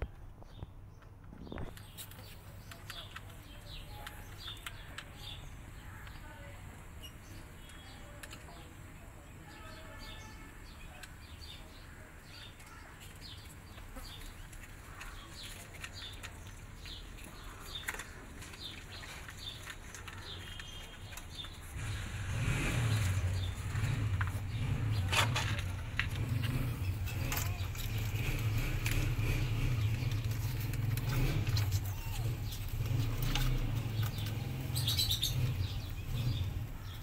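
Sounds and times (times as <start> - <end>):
cats crunching dry kibble: 12.5 - 21.9, 23.0 - 34.7.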